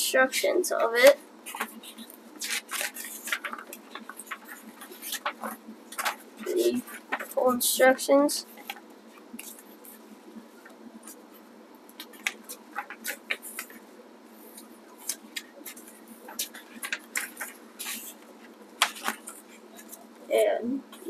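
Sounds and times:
paper rustling and crinkling: 0.8s - 7.6s, 11.9s - 20.2s.

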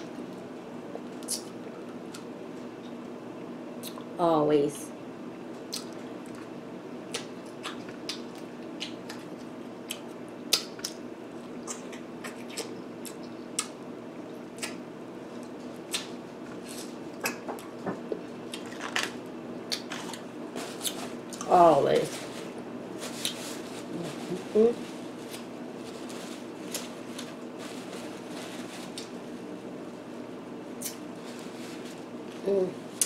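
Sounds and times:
steady low hum: 0.0s - 33.0s
person chewing: 5.7s - 13.8s.

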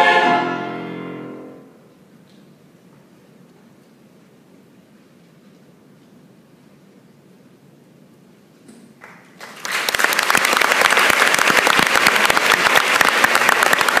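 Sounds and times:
audience applause: 9.0s - 14.0s.

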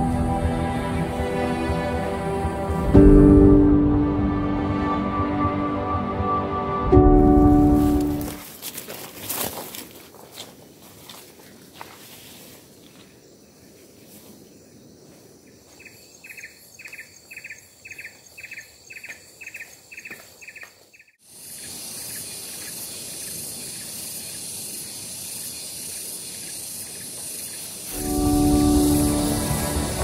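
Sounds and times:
insect pulsed chirps: 14.5s - 30.0s
outdoor hiss: 21.2s - 30.0s
high-pitched insect drone: 21.4s - 30.0s.

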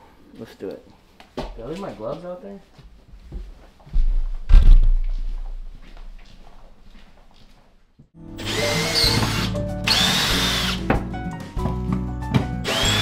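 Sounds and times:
background music: 8.2s - 13.0s
cordless drill whining: 8.4s - 10.8s, 12.6s - 13.0s.

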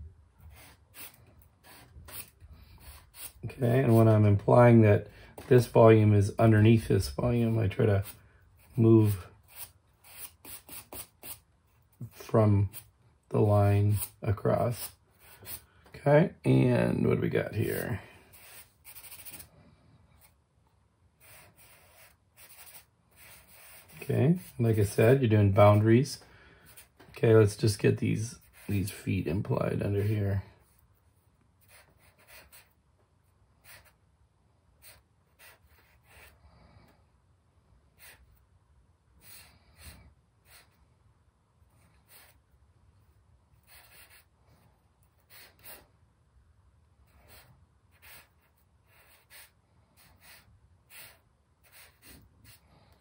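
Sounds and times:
charcoal scratching on paper: 0.5s - 4.3s, 6.9s - 11.5s, 13.9s - 15.7s, 18.3s - 19.5s, 21.2s - 25.0s, 31.6s - 32.8s, 47.1s - 52.6s.

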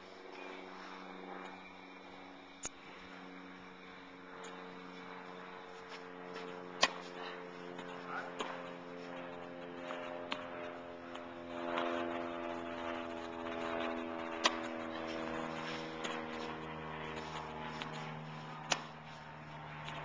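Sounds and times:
steady hum: 0.0s - 20.0s
tennis racket hitting ball: 6.4s - 7.1s, 14.3s - 19.0s.

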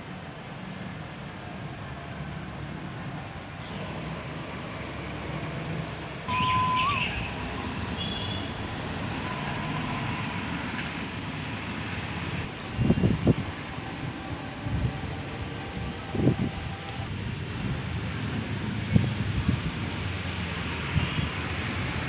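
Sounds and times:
low rumble of road traffic: 0.0s - 22.0s
brief high steady tone: 6.3s - 7.4s.

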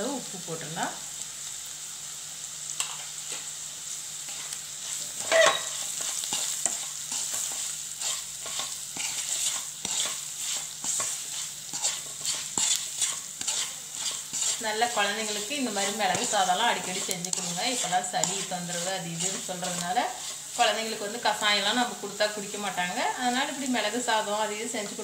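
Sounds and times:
onions sizzling in oil: 0.0s - 25.0s
wooden spatula scraping pan: 4.3s - 21.2s.

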